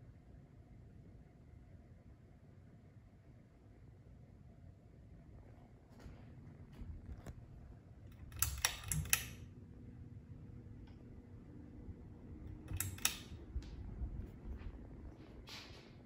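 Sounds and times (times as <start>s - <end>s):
ceiling fan humming: 0.0s - 16.0s
sharp clicks: 8.1s - 9.4s, 12.5s - 13.8s.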